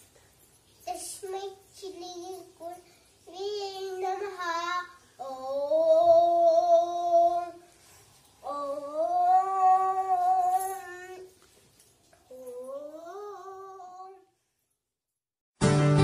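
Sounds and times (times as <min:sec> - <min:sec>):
girl singing long notes: 0:03.3 - 0:07.6, 0:08.4 - 0:11.3, 0:12.3 - 0:14.2.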